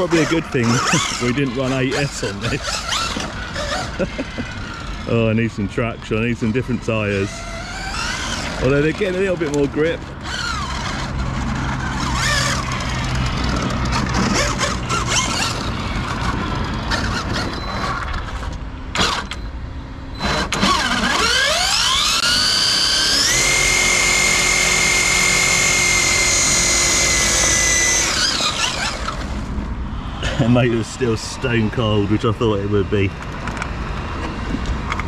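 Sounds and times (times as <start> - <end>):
electric motor whine: 0.0 - 5.3, 5.9 - 18.0, 20.2 - 29.5
tyres scrubbing on tarmac: 0.0 - 17.4.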